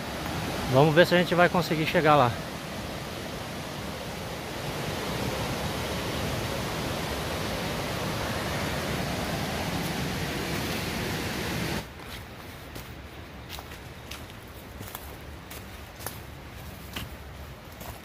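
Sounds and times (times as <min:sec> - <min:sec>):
waterfall rushing: 0:00.0 - 0:11.8.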